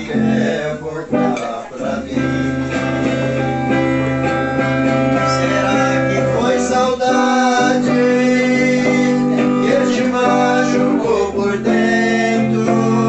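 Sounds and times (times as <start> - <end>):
electric guitar chords ringing: 0.0 - 13.0.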